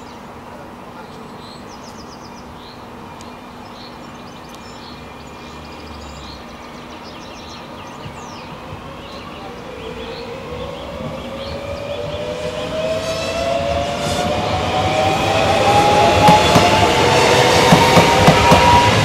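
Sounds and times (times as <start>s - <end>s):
small birds chirping: 0.0s - 13.2s
distant steam locomotive hiss and rumble: 0.0s - 19.0s
rising tone: 9.6s - 19.0s.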